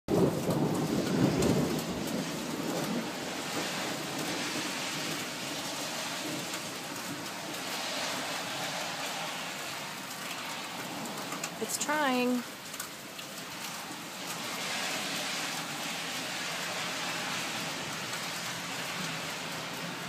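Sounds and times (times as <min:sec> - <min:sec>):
low thunder rumble: 0:00.1 - 0:08.2
steady rain falling: 0:00.1 - 0:20.0.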